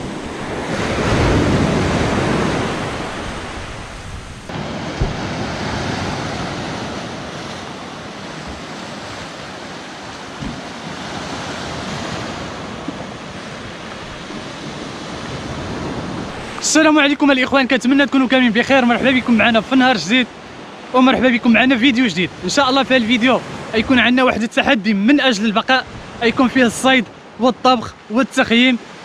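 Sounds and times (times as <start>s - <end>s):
wind buffeting microphone: 0.0s - 17.8s, 25.8s - 26.5s
surf breaking on beach: 0.0s - 24.4s.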